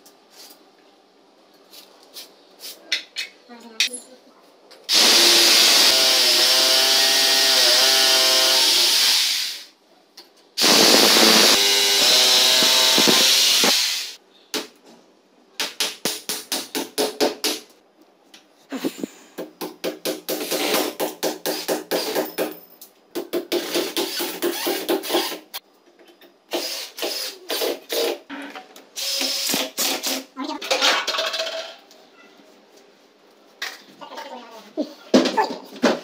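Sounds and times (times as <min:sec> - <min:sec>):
electric drill boring: 0:04.9 - 0:09.7, 0:10.6 - 0:14.2, 0:26.5 - 0:28.1, 0:29.0 - 0:30.2.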